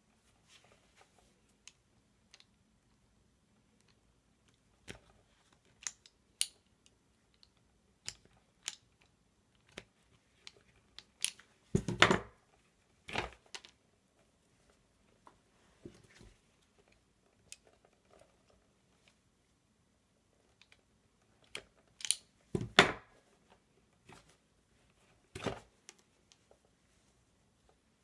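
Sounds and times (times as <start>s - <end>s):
wire stripper clicking and snapping: 21.5s - 22.3s.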